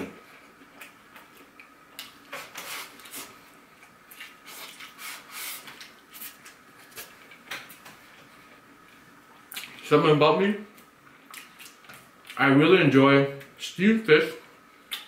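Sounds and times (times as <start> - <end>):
person chewing: 0.4 - 7.8, 10.8 - 12.4.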